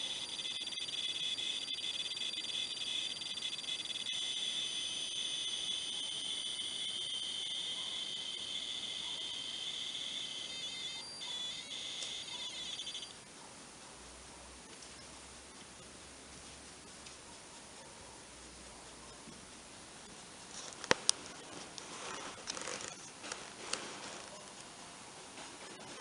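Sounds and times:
high-pitched tape data squeal: 0:00.0 - 0:13.2, 0:21.2 - 0:23.2, 0:25.6 - 0:26.0.

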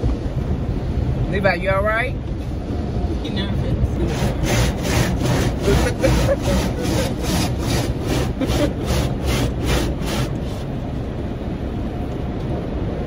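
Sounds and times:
car wash low rumble: 0:00.0 - 0:13.0
car wash brushes swishing: 0:04.0 - 0:11.0.

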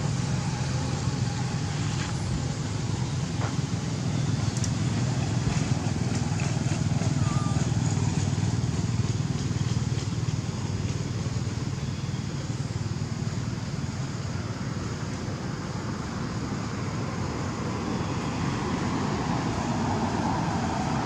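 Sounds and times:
vehicle engine low rumble: 0:00.0 - 0:21.0.

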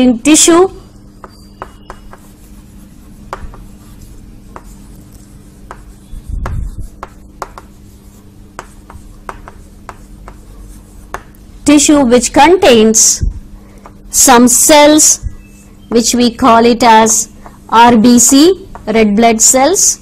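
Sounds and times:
faint hum: 0:00.0 - 0:20.0
chalk tapping and scraping: 0:00.9 - 0:11.9, 0:13.8 - 0:14.0, 0:17.0 - 0:19.1
dull low thump: 0:06.3 - 0:06.8.

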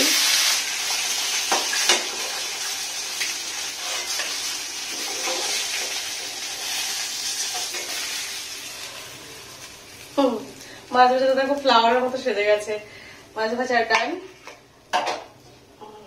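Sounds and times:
fish sizzling in hot oil: 0:00.0 - 0:11.8.

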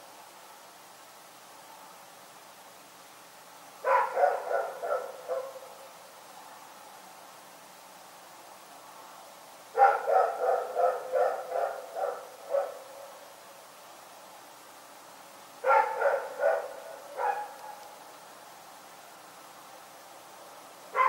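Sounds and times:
dog barking: 0:03.8 - 0:05.8, 0:09.7 - 0:12.9, 0:15.6 - 0:17.8.

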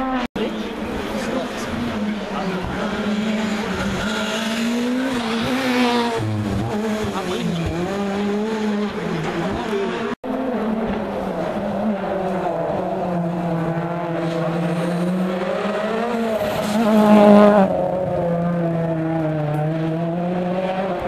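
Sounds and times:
rally car engine revving: 0:00.0 - 0:21.0.

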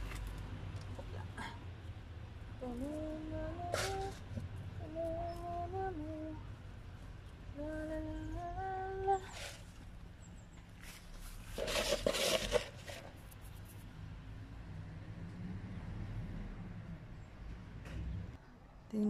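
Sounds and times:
woman humming a tune: 0:02.6 - 0:06.4, 0:07.6 - 0:09.3.

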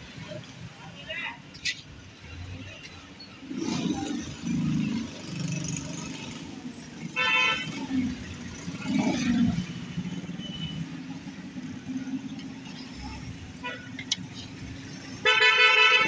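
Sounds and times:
street traffic: 0:00.0 - 0:16.0
car horn toot: 0:07.2 - 0:07.9, 0:10.4 - 0:10.9, 0:13.6 - 0:14.0, 0:15.2 - 0:16.0.

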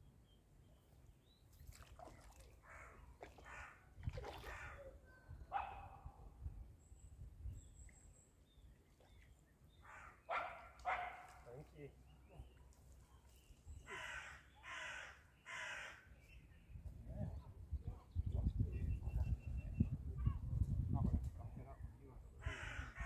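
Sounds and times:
harsh bird calls: 0:09.0 - 0:11.2, 0:13.8 - 0:16.6.

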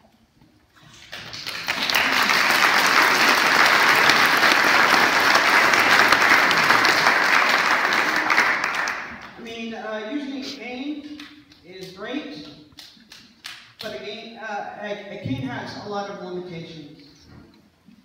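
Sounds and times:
audience applauding: 0:00.9 - 0:09.4.

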